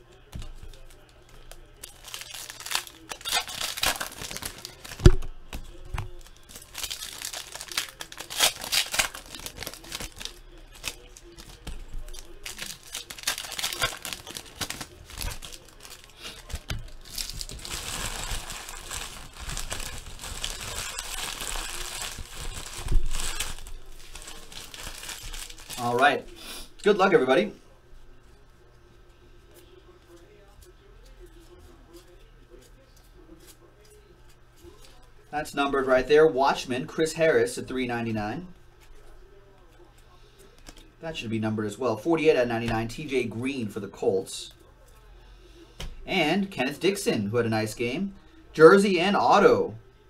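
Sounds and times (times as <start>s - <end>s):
foil wrappers crinkling: 0.1s - 26.3s
trading cards rustling: 0.4s - 26.0s.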